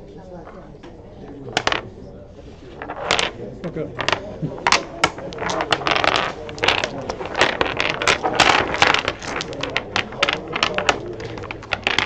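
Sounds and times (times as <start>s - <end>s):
tiles sliding across wood: 1.5s - 1.8s, 2.4s - 3.4s, 4.0s - 12.0s
dominoes clacking together: 1.5s - 1.9s, 2.6s - 12.0s.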